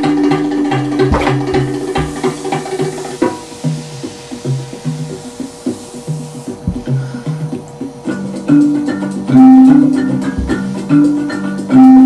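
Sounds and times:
low percussive background music: 0.0 - 3.2, 6.6 - 11.8.

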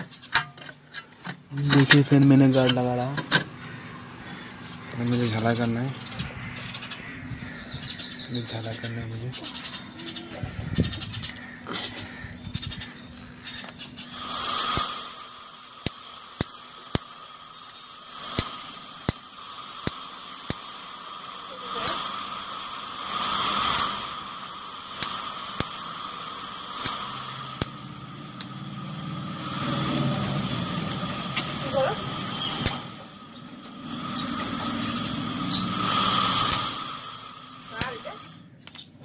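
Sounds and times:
brazing torch flame hissing: 14.0 - 38.4
sharp clicks: 25.0 - 25.8, 26.8 - 27.8, 32.4 - 33.4.

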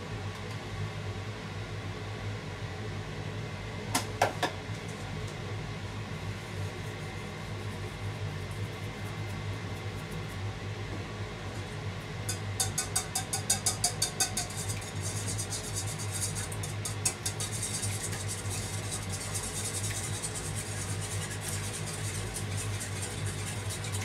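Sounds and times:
whisk clinking against bowl: 12.3 - 24.0.

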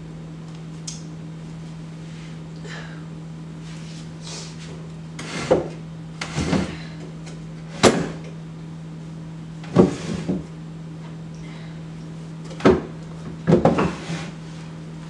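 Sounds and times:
steady low hum: 0.0 - 15.0
cabinet doors and drawers knocking: 12.6 - 14.1.

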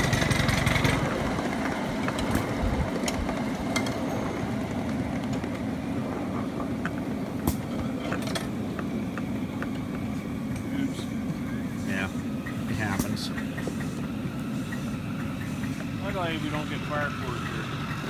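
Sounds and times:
miniature train rolling on track: 0.0 - 18.0
rhythmic engine note: 12.1 - 18.0.

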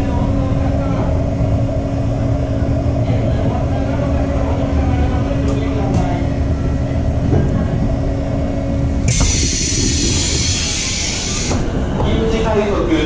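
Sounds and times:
train rumble and hum: 0.0 - 13.0
loud steady hiss: 9.0 - 11.7.

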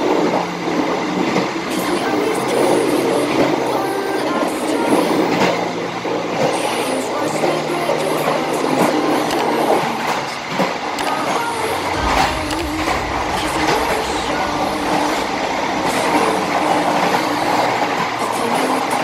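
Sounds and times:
train rolling on rails: 0.0 - 19.0
low rumble: 11.9 - 17.2.

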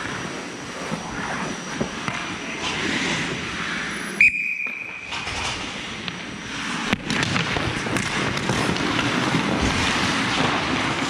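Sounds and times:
skates scraping on ice: 0.0 - 3.9, 4.7 - 11.0
referee's whistle blast: 4.2 - 5.1.

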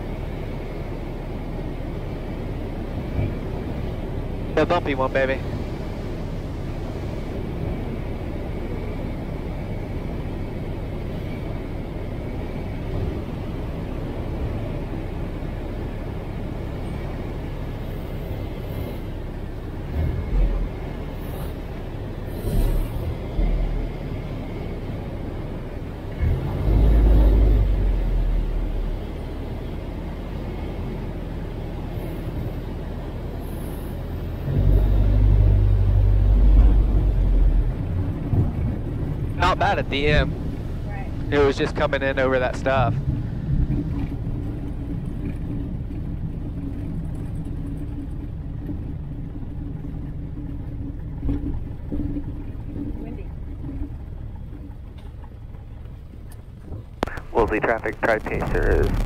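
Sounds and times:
light plane engine and propeller: 0.0 - 59.0
low rumbles: 0.0 - 59.0
short low thumps: 56.7 - 59.0.

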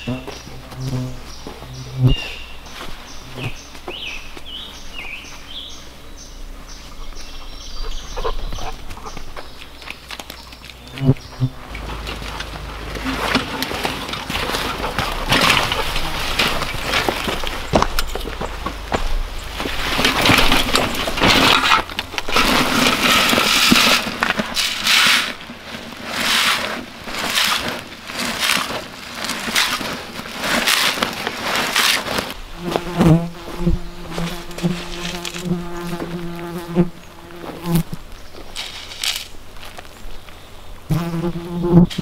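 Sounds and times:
scraping and rustling: 6.7 - 40.0
fly buzzing: 10.8 - 16.8, 32.4 - 38.0, 40.9 - 42.0.

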